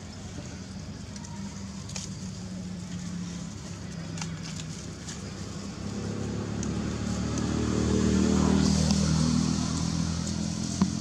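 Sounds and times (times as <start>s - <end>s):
vehicle engine passing by: 4.7s - 11.0s.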